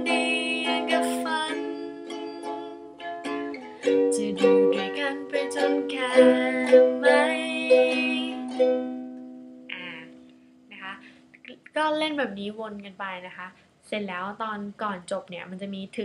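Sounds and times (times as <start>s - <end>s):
ukulele strumming: 0.0s - 10.3s.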